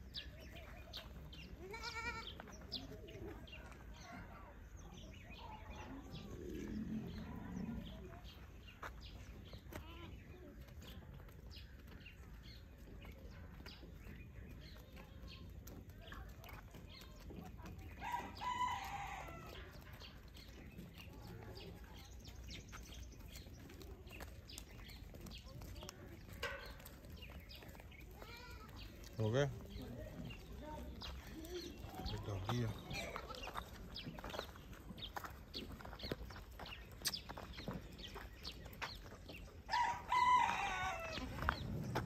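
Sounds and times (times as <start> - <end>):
rooster crowing: 39.7 - 41.4.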